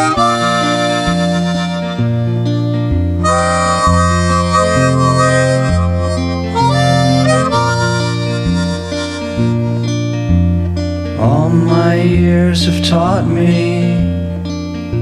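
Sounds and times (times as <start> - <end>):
harmonica playing: 0.0 - 10.8
low backing line: 0.0 - 15.0.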